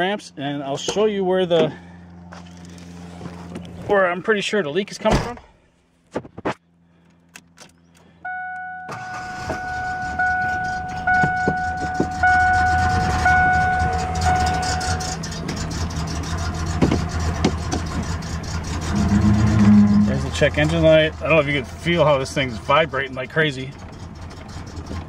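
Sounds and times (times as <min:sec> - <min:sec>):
engine running rough: 0:00.0 - 0:04.6, 0:08.9 - 0:25.0
dashboard warning chime beeping: 0:08.2 - 0:15.2.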